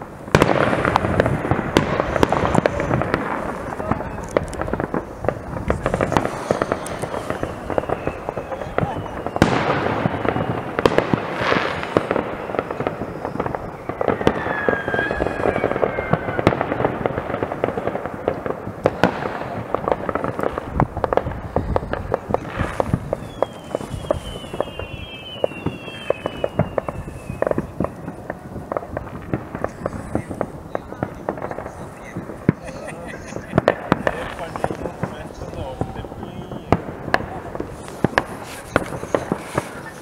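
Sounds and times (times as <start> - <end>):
distant firework bangs and crackles: 0.0 - 40.0
firework whistles falling in pitch: 5.8 - 16.8, 22.4 - 28.5, 35.3 - 36.8.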